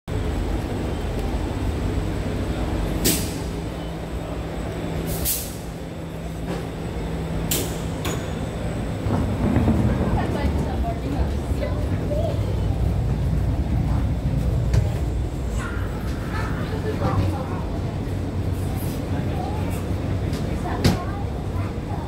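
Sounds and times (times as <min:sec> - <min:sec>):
train low hum and rumble: 0:00.1 - 0:22.0
pneumatic air hisses: 0:03.0 - 0:03.5, 0:05.1 - 0:05.7.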